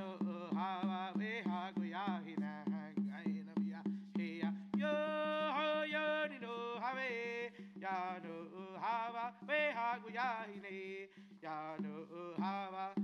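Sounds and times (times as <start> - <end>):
fast steady drumbeat: 0.0 - 13.0.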